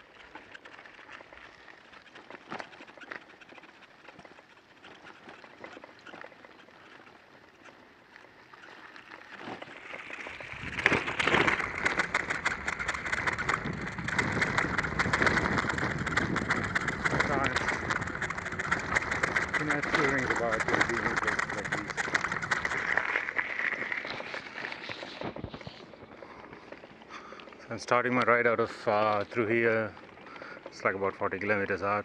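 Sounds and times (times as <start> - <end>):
bicycle tyres crackling on gravel: 0.0 - 32.0
steady low rumble: 10.4 - 23.7.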